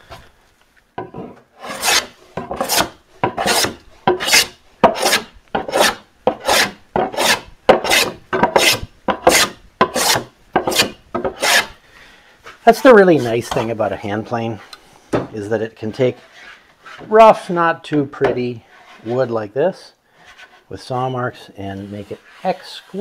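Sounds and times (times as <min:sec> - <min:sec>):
hand plane shaving wood: 0:01.6 - 0:11.8.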